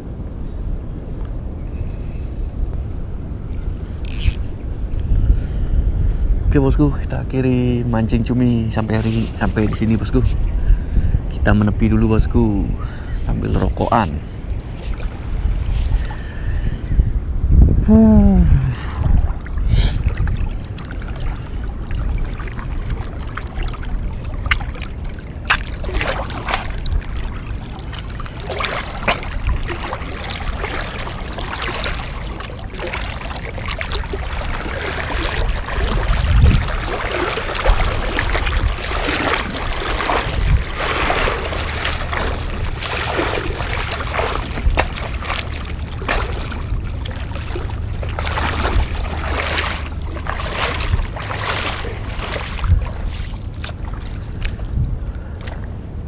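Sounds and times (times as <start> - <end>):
wind on microphone: 0.0 - 56.0
wading through water splashing: 14.4 - 16.6, 18.2 - 55.8.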